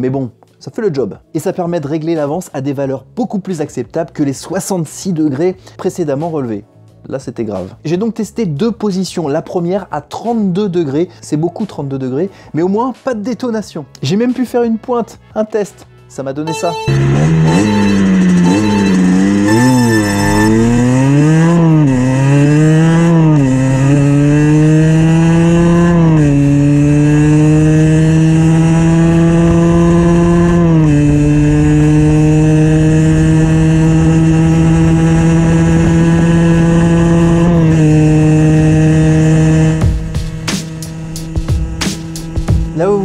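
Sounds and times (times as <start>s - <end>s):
two-stroke motorcycle accelerating: 16.5s - 43.0s.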